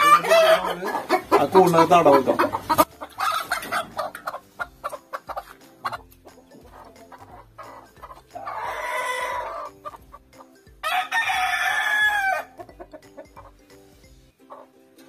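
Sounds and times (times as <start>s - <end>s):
rooster crowing: 10.8s - 12.6s.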